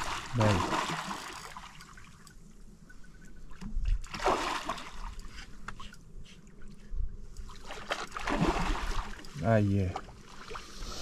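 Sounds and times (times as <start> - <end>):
water splashing and sloshing: 0.0 - 11.0.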